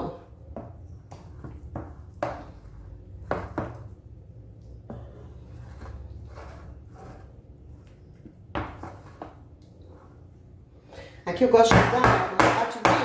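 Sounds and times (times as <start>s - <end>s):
wooden spoon scraping metal mould: 4.9s - 7.9s, 8.6s - 10.2s.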